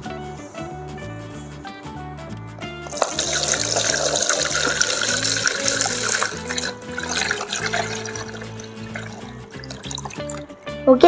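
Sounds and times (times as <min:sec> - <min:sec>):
water pouring into plastic basin: 0:02.9 - 0:10.5.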